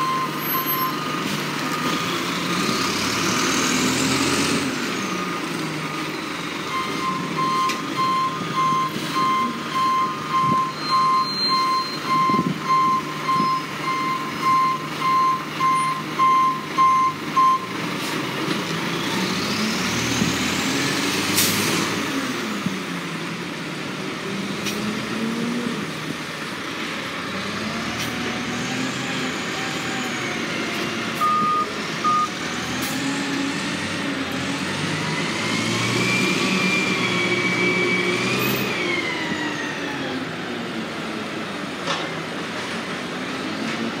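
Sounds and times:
garbage truck diesel engine: 0:00.0 - 0:44.0
short beeps: 0:06.8 - 0:17.7, 0:31.2 - 0:32.3.

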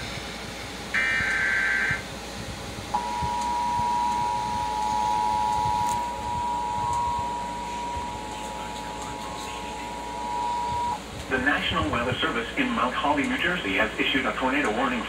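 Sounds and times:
data burst tones: 0:01.0 - 0:02.0, 0:03.0 - 0:11.1
two-tone attention signal: 0:03.0 - 0:11.0.

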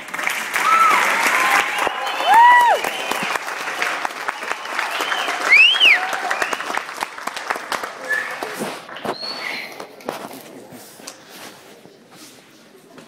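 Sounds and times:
audience applauding: 0:00.0 - 0:09.1
crowd cheering and whooping: 0:00.5 - 0:06.8.

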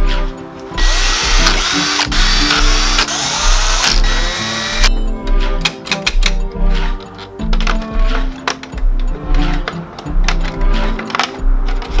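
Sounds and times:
cordless drill driving screw: 0:00.8 - 0:04.9.

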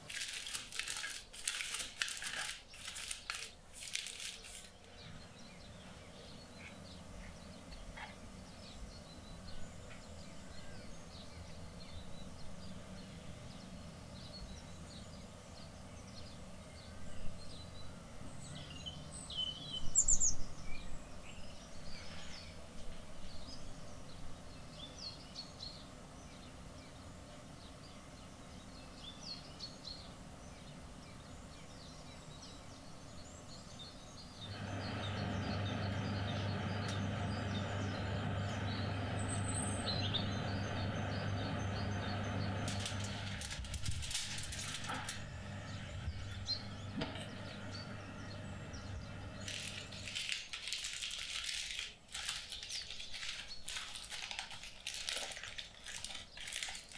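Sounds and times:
aluminium foil crinkling: 0:00.0 - 0:05.2, 0:42.6 - 0:45.7, 0:49.4 - 0:56.9
low steady hum: 0:00.0 - 0:51.0
birds chirping: 0:02.6 - 0:50.6.

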